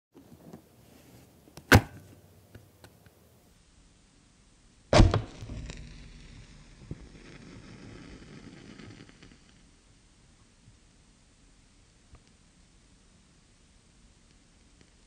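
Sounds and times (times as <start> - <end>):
match flaring fizz and hiss: 5.2 - 9.8
match scraping on matchbox: 6.9 - 9.6.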